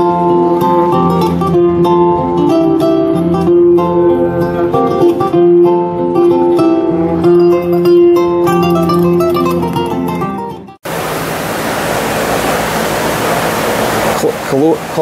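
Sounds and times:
plucked acoustic guitar melody: 0.0s - 10.8s.

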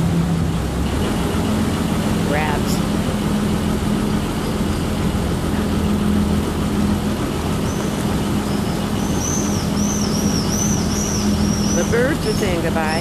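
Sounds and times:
boat engine running: 0.0s - 13.0s
propeller wash churning water: 0.0s - 13.0s
bird chirping: 7.7s - 12.6s.

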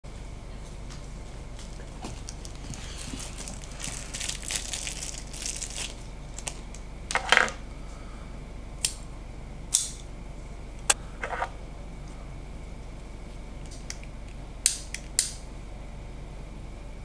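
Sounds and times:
paper crinkling and tearing: 2.2s - 6.7s
sharp crackles: 2.2s - 6.8s.

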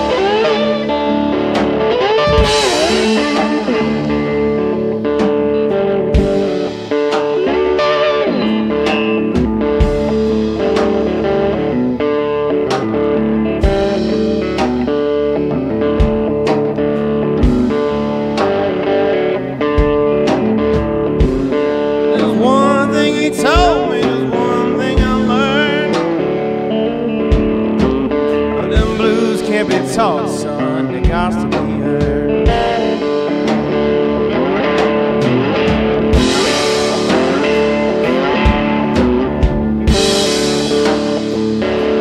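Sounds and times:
guitar: 0.0s - 42.0s
steady drum beat: 0.0s - 42.0s
person singing: 22.0s - 26.6s, 28.2s - 33.3s.

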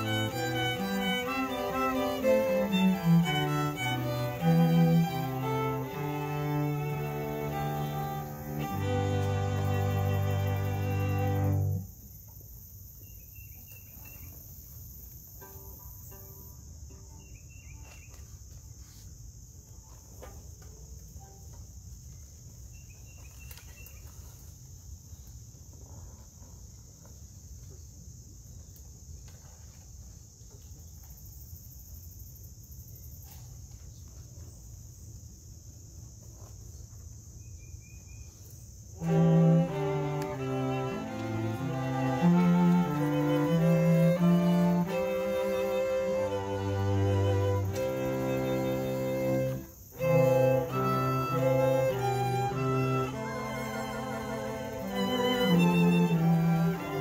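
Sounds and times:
string quartet playing: 0.0s - 11.9s, 39.0s - 57.0s
insects trilling: 0.0s - 18.1s, 34.5s - 57.0s.

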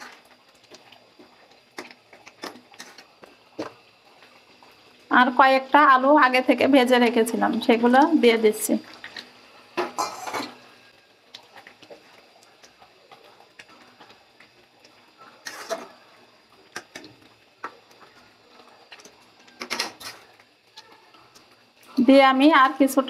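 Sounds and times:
metal spatula scraping a pan: 9.9s - 10.6s, 15.2s - 16.0s.

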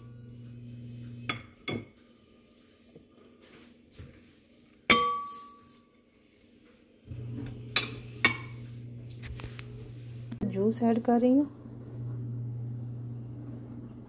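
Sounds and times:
low steady hum: 0.0s - 1.3s, 7.1s - 14.0s
glass bowl clinking: 4.9s - 5.8s, 7.7s - 8.6s.

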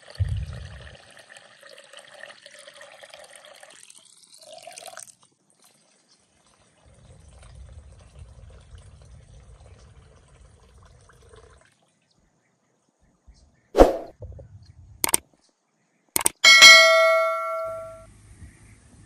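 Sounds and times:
water pouring into a bowl: 0.0s - 11.9s
sharp knocks: 16.2s - 18.0s.

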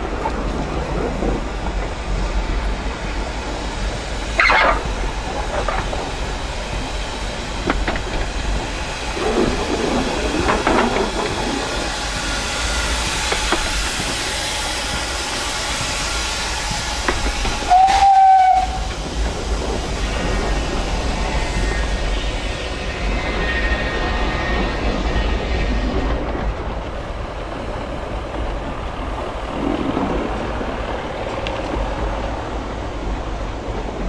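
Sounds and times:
steam locomotive running: 0.0s - 34.0s
steam hissing: 0.1s - 29.4s
steam whistle toot: 17.6s - 18.9s.

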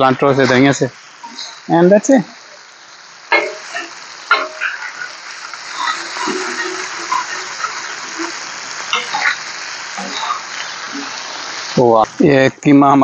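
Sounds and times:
meat sizzling on griddle: 0.0s - 13.0s
metal spatula scraping griddle: 3.4s - 9.4s.

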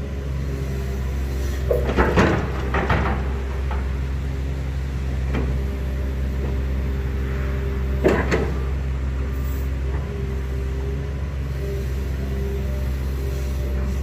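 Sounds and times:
excavator diesel engine running: 0.0s - 14.0s
excavator clunks: 1.4s - 6.7s, 7.8s - 8.8s.

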